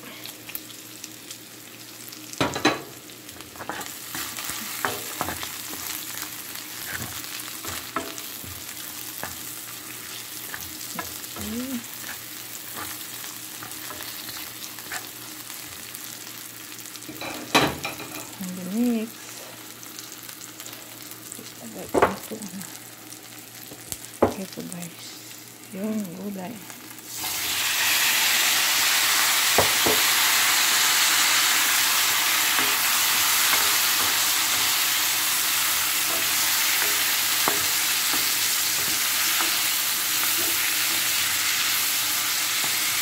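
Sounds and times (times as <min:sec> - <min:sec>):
food sizzling in oil: 0:00.0 - 0:43.0
spoon stirring and scraping pan: 0:02.5 - 0:16.0, 0:31.3 - 0:43.0.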